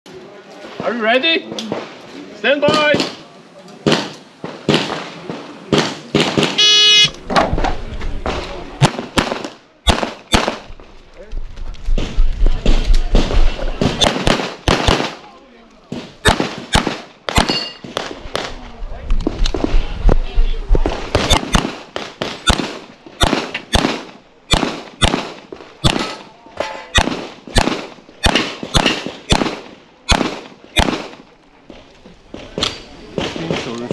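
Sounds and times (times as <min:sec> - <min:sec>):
shot timer beep: 0:06.6 - 0:07.1
pistol shots: 0:08.8 - 0:10.7, 0:13.1 - 0:15.2, 0:15.9 - 0:18.5, 0:21.1 - 0:26.2, 0:27.0 - 0:31.2.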